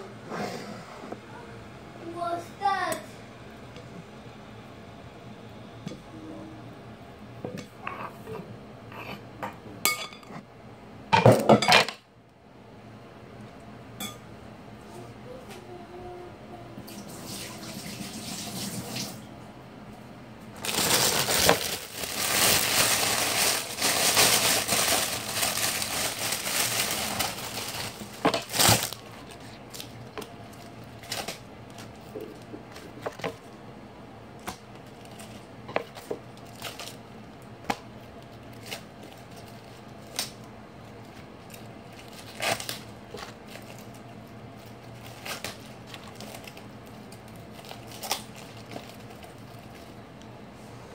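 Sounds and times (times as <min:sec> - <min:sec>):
kitchen tap running: 0:16.9 - 0:19.2
lettuce leaves crinkling: 0:20.6 - 0:33.5, 0:34.7 - 0:37.5, 0:38.1 - 0:50.0.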